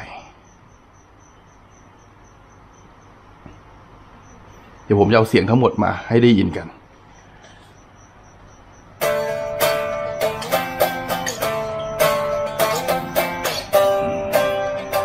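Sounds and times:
clean electric guitar riff: 0:09.0 - 0:15.0.

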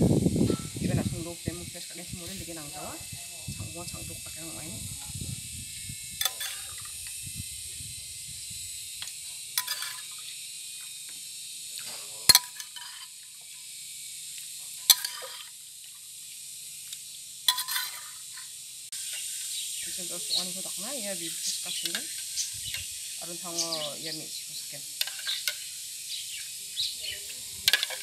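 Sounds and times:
steady high hiss: 0:00.0 - 0:28.0
steel ladle clinking: 0:06.2 - 0:06.9, 0:09.6 - 0:10.2, 0:12.3 - 0:13.1, 0:14.8 - 0:15.5, 0:17.5 - 0:18.2, 0:27.6 - 0:28.0.

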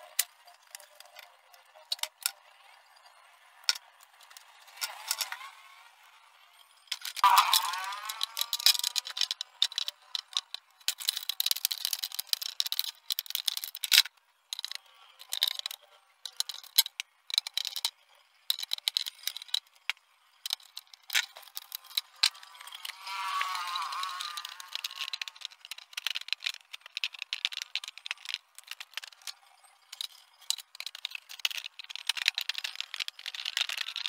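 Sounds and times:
plastic sheets crackling and clicking: 0:00.0 - 0:02.4, 0:03.6 - 0:05.6, 0:06.9 - 0:34.0.

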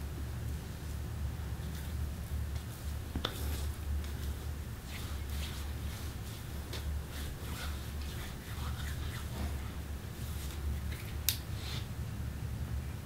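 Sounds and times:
steady low hum: 0:00.0 - 0:13.0
soft taps and rustles: 0:01.6 - 0:11.5.

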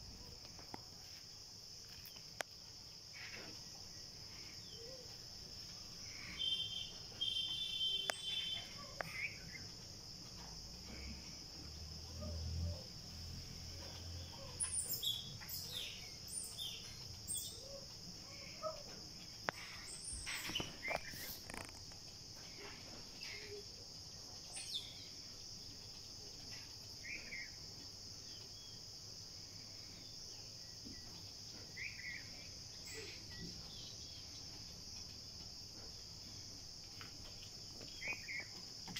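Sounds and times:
insects chorus: 0:00.0 - 0:38.9
bird chirps: 0:06.2 - 0:09.8, 0:13.9 - 0:18.8.

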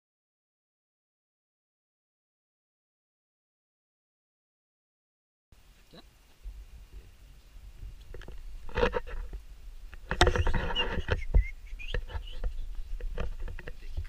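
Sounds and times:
camera handling rustle in brush: 0:08.0 - 0:14.0
clicks and knocks: 0:08.1 - 0:13.9.

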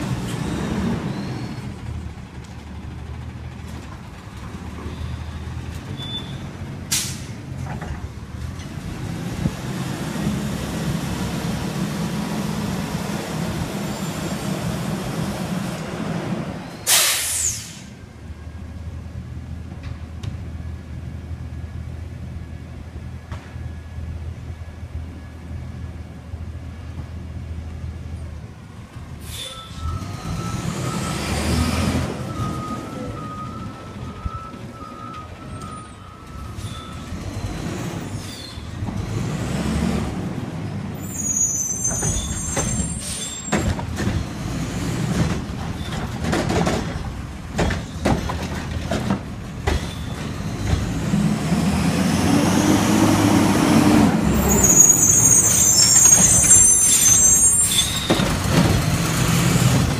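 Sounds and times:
garbage truck diesel engine: 0:00.0 - 0:59.9
high brake squeal: 0:00.3 - 0:01.9, 0:04.9 - 0:07.4, 0:13.7 - 0:14.8, 0:16.6 - 0:18.0, 0:29.2 - 0:38.8, 0:41.0 - 0:43.7, 0:49.8 - 0:51.1, 0:54.3 - 0:58.5
air brake hiss: 0:06.9 - 0:07.4, 0:16.8 - 0:18.0, 0:29.2 - 0:29.8.

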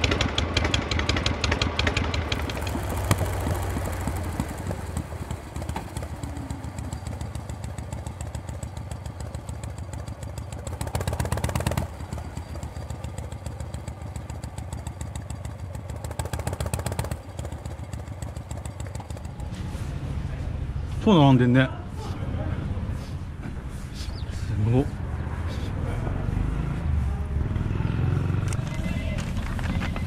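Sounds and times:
motorcycle engine running: 0:00.0 - 0:20.9.

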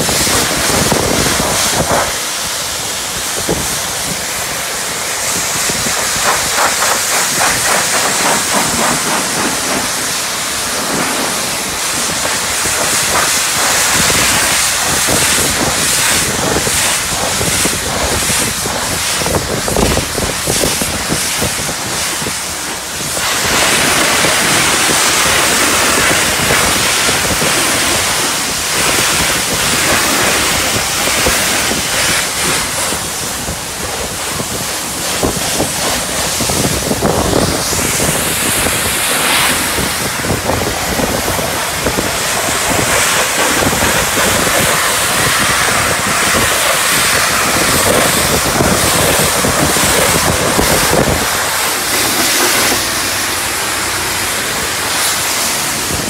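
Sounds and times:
foam lance hissing spray: 0:00.0 - 0:56.0.

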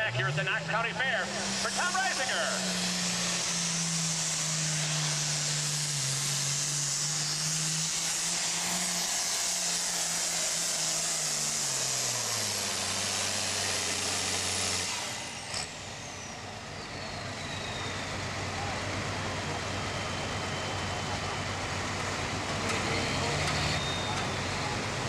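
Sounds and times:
diesel tractor engine at full throttle: 0:00.0 - 0:25.0.

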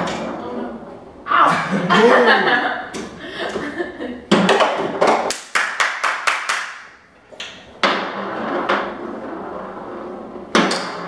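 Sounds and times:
ball and rods rumbling: 0:00.0 - 0:05.3, 0:07.4 - 0:11.0
foosball clacks: 0:04.3 - 0:05.5, 0:07.3 - 0:11.0.

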